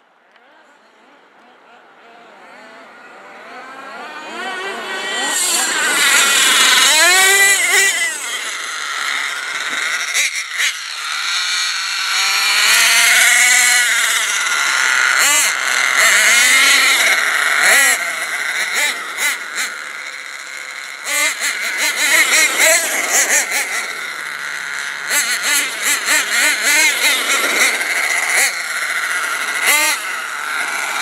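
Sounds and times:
nitro engines revving: 0:00.9 - 0:31.0.

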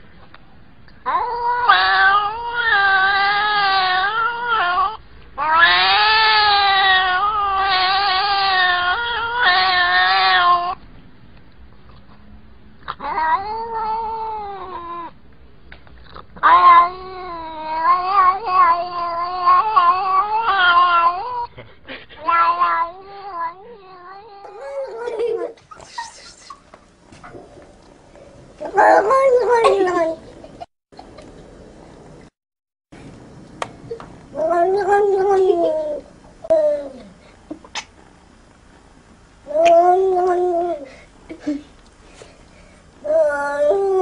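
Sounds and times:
cat yowling: 0:01.1 - 0:10.8, 0:12.9 - 0:15.1, 0:16.4 - 0:21.5.

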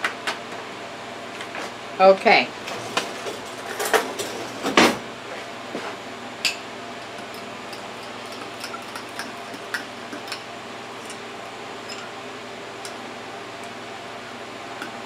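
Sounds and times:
metal spoon clinking ceramic mug: 0:07.2 - 0:11.2, 0:11.8 - 0:12.2.

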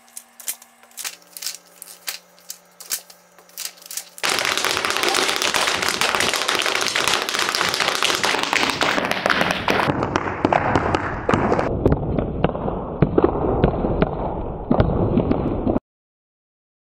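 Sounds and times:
hard shoes tapping on hard floor: 0:04.2 - 0:11.7.

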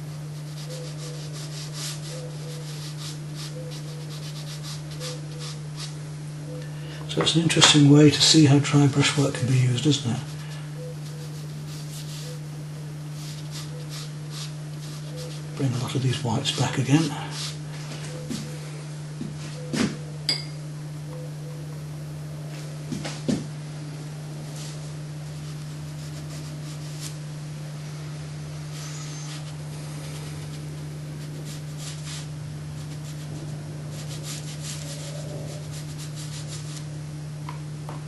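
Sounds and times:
dry brush scratching paper: 0:00.0 - 0:06.0, 0:10.2 - 0:12.4, 0:13.1 - 0:15.9, 0:16.5 - 0:17.6, 0:24.6 - 0:27.2, 0:28.7 - 0:36.9
low hum: 0:00.0 - 0:38.0.

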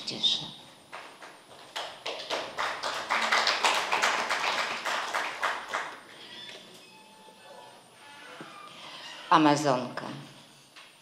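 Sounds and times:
audience applauding: 0:01.0 - 0:06.1.

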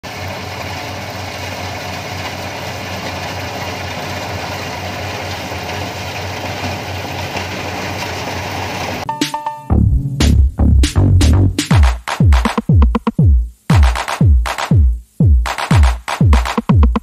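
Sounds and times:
combine harvester engine drone: 0:00.1 - 0:09.0.

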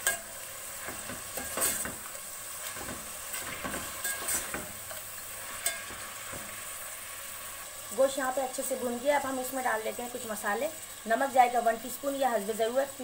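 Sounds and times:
metal spoon scraping a pot: 0:00.0 - 0:02.0, 0:02.6 - 0:04.6, 0:05.6 - 0:06.0
meat sizzling in hot oil: 0:00.0 - 0:13.0.

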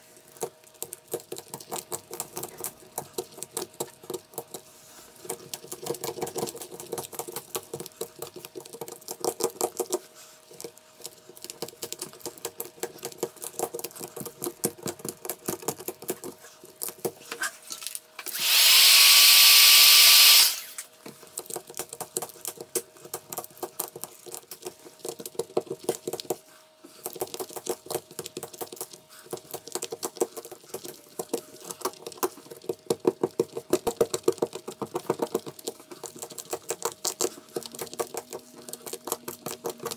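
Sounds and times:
loud blowing hiss: 0:18.3 - 0:20.8.

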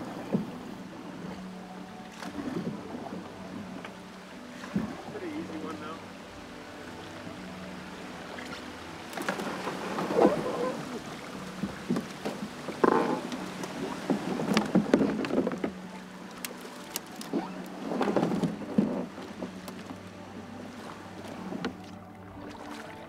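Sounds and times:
sticks scraping along hull: 0:09.1 - 0:11.0, 0:11.6 - 0:15.8.

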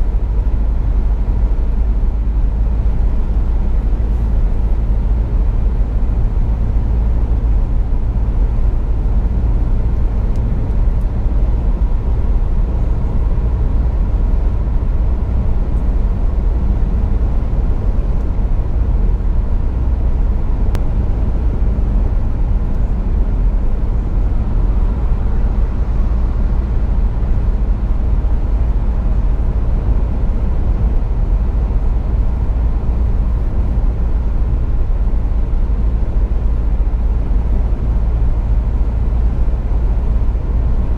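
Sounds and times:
car cabin road noise: 0:00.0 - 0:40.9.

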